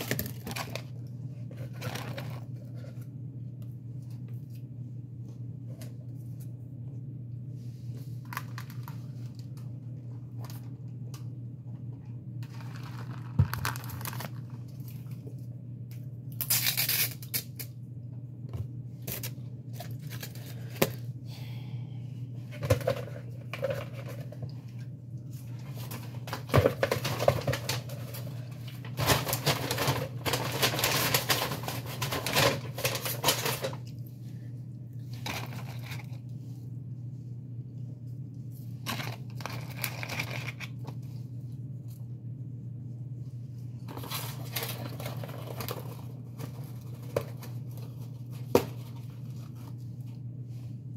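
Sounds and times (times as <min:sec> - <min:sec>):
steady low hum: 0:00.0 - 0:50.9
paper wrappers crinkling and tearing: 0:12.4 - 0:15.2, 0:19.0 - 0:20.8, 0:25.6 - 0:33.9, 0:38.8 - 0:41.0, 0:43.8 - 0:50.1.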